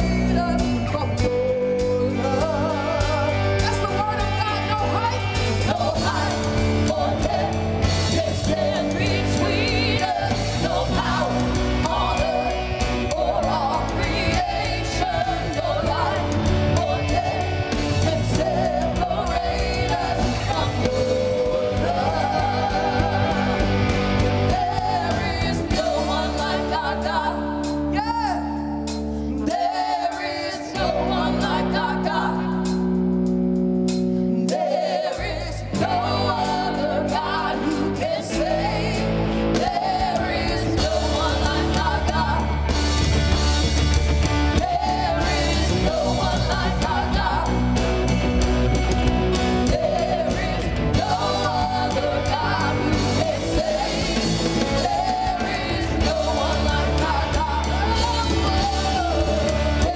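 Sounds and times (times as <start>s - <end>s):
person singing: 0.0s - 32.9s, 49.4s - 59.9s
band playing bass drums guitar: 0.0s - 59.9s.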